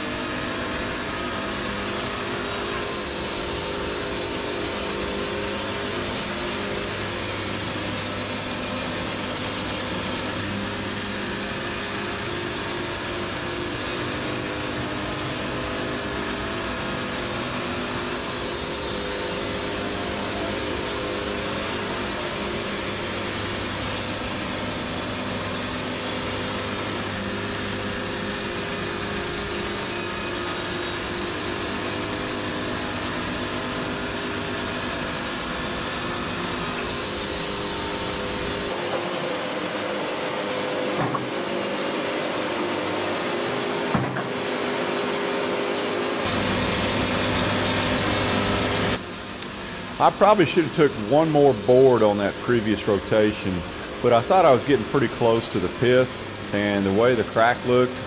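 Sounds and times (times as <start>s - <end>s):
bandsaw sawmill droning: 0.0s - 58.0s.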